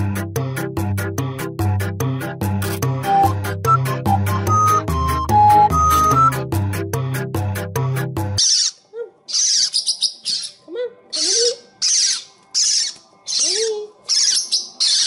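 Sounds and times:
parrot chicks begging calls: 8.4s - 15.0s.

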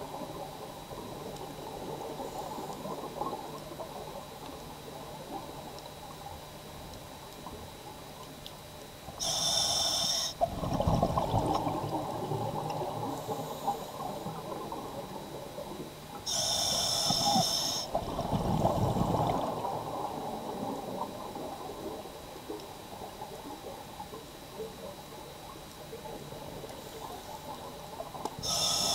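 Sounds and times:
regulator inhale hiss: 9.2s - 10.4s, 13.1s - 14.3s, 16.2s - 18.0s, 28.4s - 28.9s.

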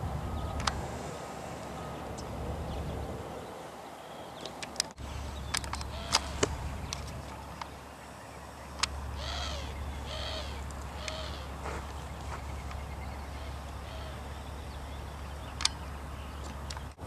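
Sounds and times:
low steady hum: 0.0s - 17.0s
sharp clicks: 0.6s - 0.8s, 4.4s - 7.8s, 8.7s - 9.0s, 15.4s - 17.0s
animal calling: 5.8s - 6.7s, 9.1s - 16.4s.

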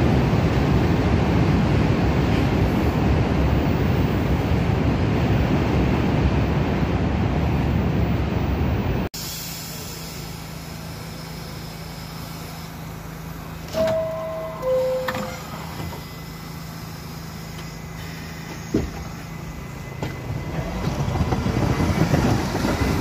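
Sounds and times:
subway train rumbling: 0.0s - 23.0s
faint high whine: 10.2s - 20.7s.

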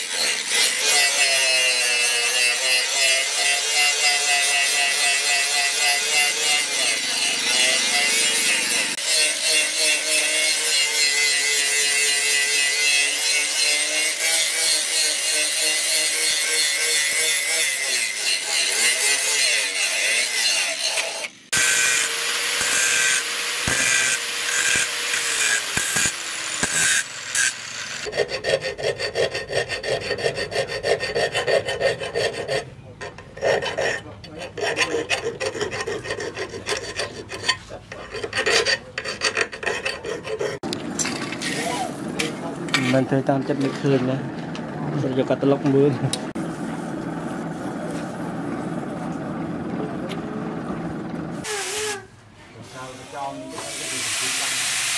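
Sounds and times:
file rasping on metal: 0.0s - 40.6s
angle grinder grinding steel: 0.0s - 49.5s.

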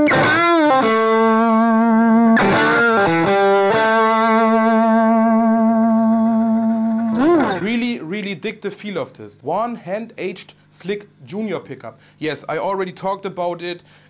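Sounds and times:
electric guitar sustained notes: 0.0s - 7.6s.

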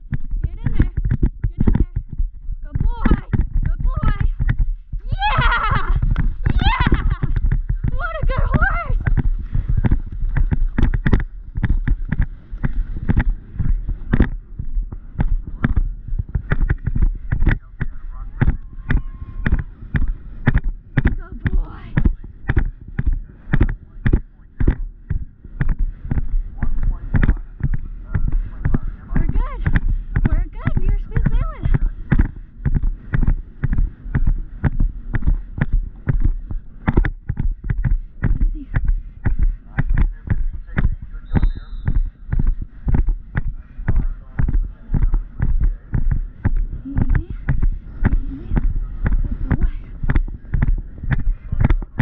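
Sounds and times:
horse cantering on turf: 0.0s - 52.0s
wind on microphone: 0.0s - 52.0s
hooves splashing through water: 5.4s - 24.0s.

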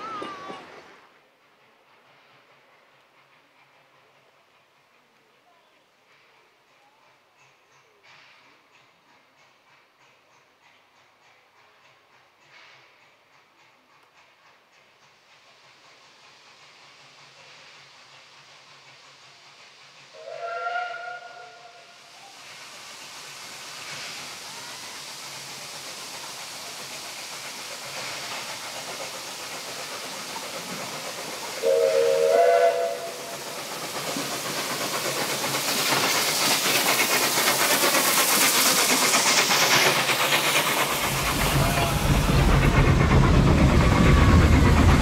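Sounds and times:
train steam hiss and running noise: 0.0s - 45.0s
steam whistle blast: 20.1s - 22.0s, 31.6s - 33.3s.

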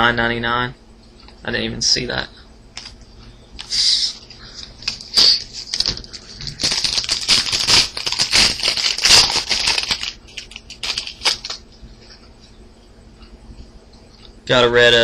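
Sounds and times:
foil wrapper crinkling and tearing: 4.6s - 11.6s.

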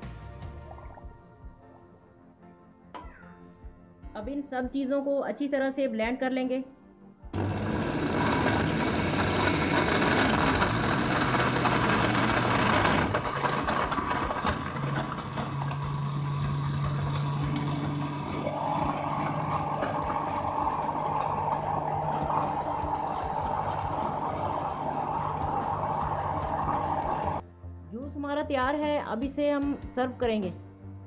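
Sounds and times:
blender running: 7.4s - 27.4s.

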